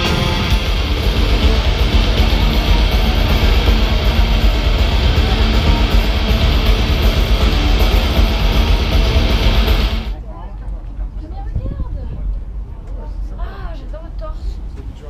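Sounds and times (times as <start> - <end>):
distorted guitars: 0.0 - 10.2
drums: 0.0 - 10.2.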